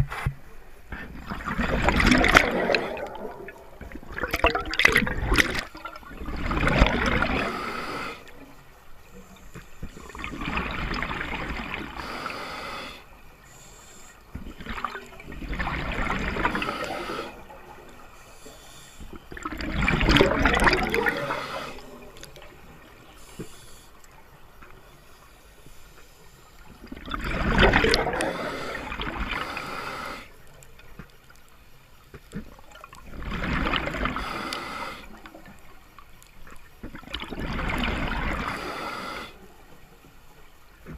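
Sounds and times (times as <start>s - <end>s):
regulator bubbling underwater: 1.0s - 8.3s, 14.4s - 18.2s, 19.1s - 23.2s, 26.8s - 29.4s.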